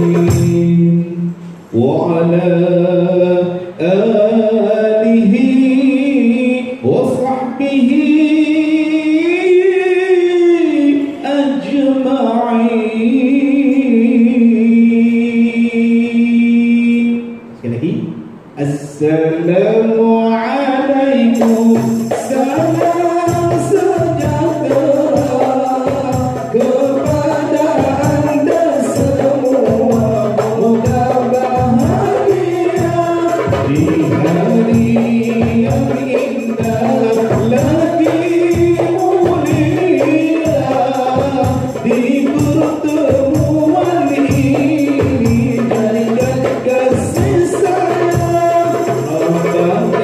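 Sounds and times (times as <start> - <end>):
men singing together: 0.0 - 1.2, 19.9 - 50.0
hand drum beating: 21.4 - 50.0
tambourine: 21.4 - 50.0.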